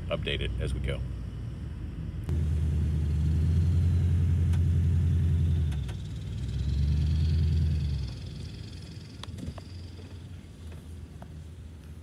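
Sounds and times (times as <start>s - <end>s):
pickup truck engine rumble: 2.3s - 11.8s.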